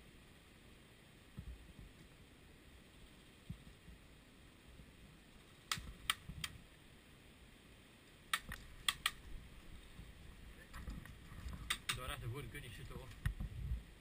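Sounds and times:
airsoft gunfire snaps: 5.7 - 6.6, 8.3 - 9.2, 11.7 - 12.1.

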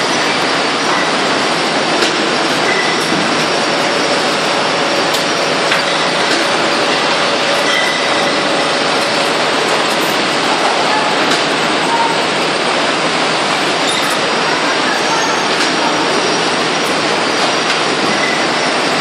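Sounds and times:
bottling machinery clattering: 0.0 - 19.0
glass bottles clinking: 4.9 - 10.6.

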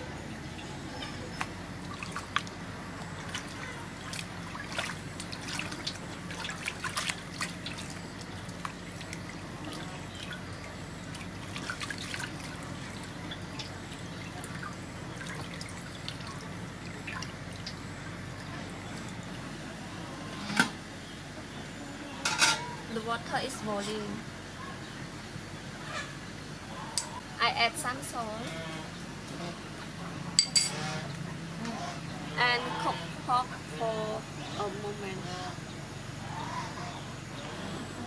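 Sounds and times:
water splashing and dripping: 1.4 - 2.6, 3.2 - 17.8.

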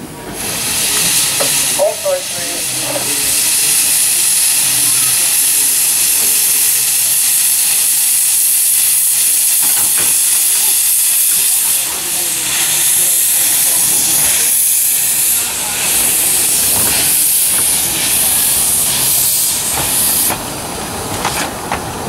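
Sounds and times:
steam hissing from locomotive: 0.0 - 22.0.

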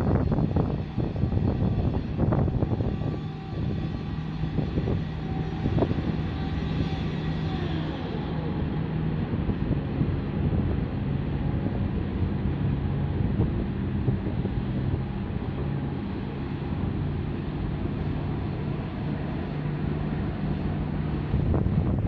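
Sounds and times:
ship engine hum: 0.0 - 22.0
wind on microphone: 0.0 - 22.0.

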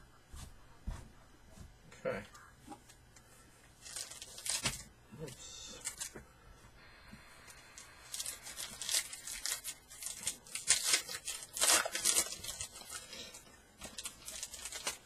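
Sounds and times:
foil wrapper tearing and crinkling: 3.8 - 4.9, 7.5 - 15.0.

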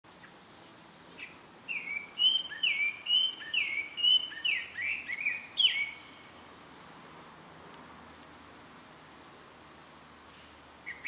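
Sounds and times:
songbird singing: 0.0 - 11.0
faint high bird calls: 0.1 - 7.5.

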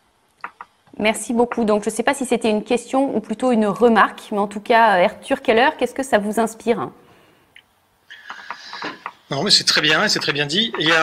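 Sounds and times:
person drawing breath: 8.1 - 9.1.

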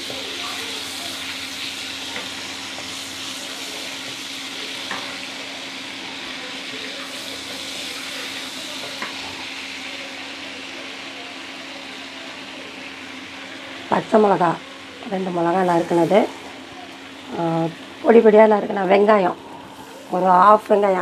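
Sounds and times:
seeds sizzling in oil: 0.0 - 21.0.

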